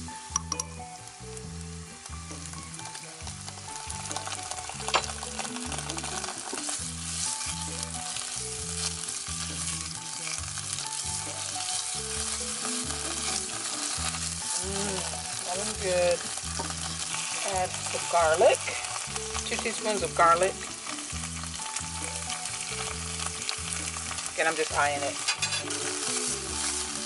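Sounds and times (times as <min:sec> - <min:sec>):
onions sizzling in hot oil: 0:00.0 - 0:27.0
wooden spatula scraping pan: 0:05.1 - 0:20.2, 0:24.8 - 0:27.0.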